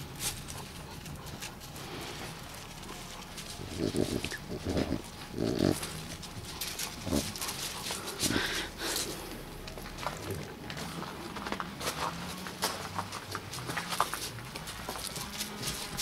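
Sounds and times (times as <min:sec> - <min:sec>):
puppy sniffing and snorting: 0:00.0 - 0:09.5.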